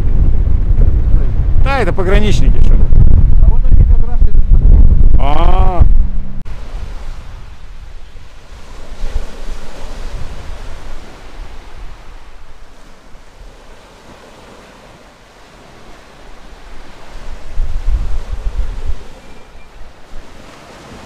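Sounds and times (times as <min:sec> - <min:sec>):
wind rumbling on microphone: 0:00.0 - 0:21.0
waves washing around a pier: 0:06.5 - 0:21.0.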